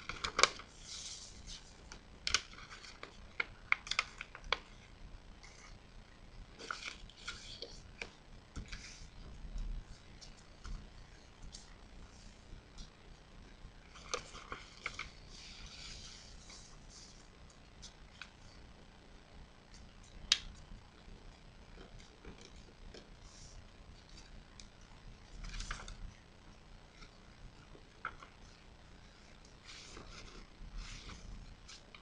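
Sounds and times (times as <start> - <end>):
paper rustling and crinkling: 0.0 - 5.8, 6.5 - 12.9, 13.8 - 18.4, 25.3 - 26.2, 26.9 - 32.0.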